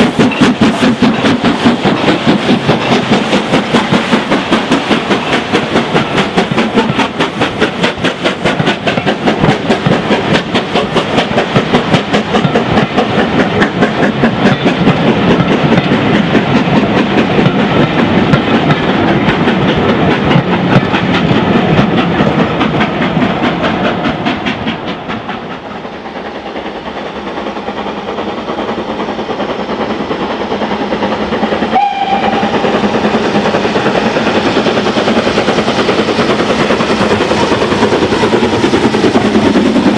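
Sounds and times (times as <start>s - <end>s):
coaches clattering on rails: 0.0s - 39.9s
steam locomotive exhaust beats: 0.0s - 39.9s
steam tank engine working: 0.0s - 39.9s
steam locomotive whistle: 31.6s - 33.0s.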